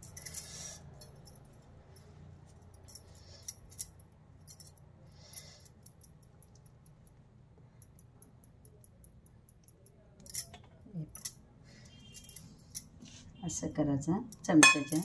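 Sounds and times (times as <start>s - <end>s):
glass bangles clinking: 0.0s - 6.8s, 8.7s - 13.0s, 14.2s - 15.0s.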